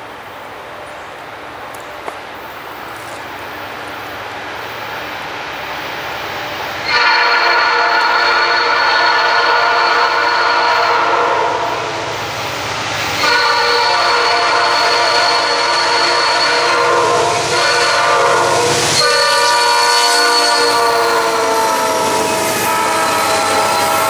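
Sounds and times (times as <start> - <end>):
locomotive air horn: 6.8 - 12.0, 13.2 - 24.0.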